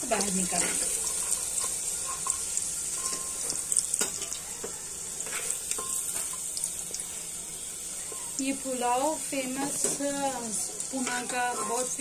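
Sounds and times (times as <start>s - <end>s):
potatoes sizzling in oil: 0.0s - 12.0s
metal spoon scraping pot: 0.5s - 4.4s.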